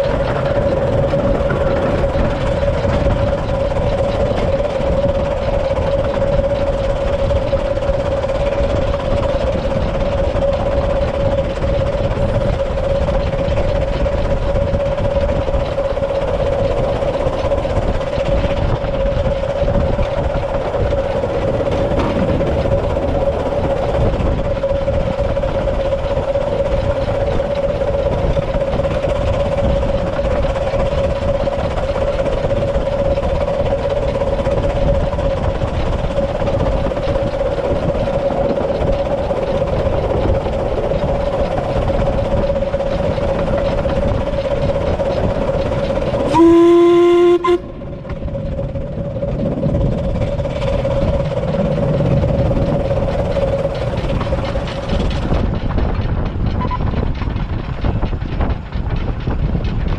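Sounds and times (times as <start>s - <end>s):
steam locomotive rumble: 0.0s - 59.9s
steam whistle blast: 46.3s - 47.8s.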